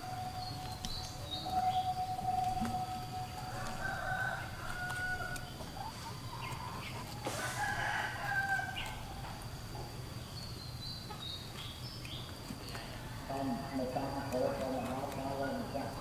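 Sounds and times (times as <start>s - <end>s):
rooster crowing: 0.0s - 9.4s.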